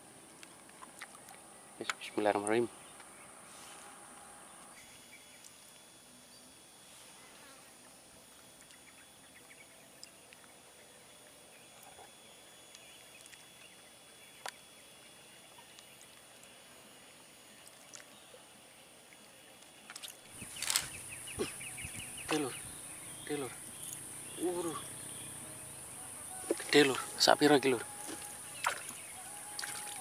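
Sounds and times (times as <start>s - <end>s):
high-pitched insect buzz: 3.5s - 18.3s, 19.0s - 30.0s.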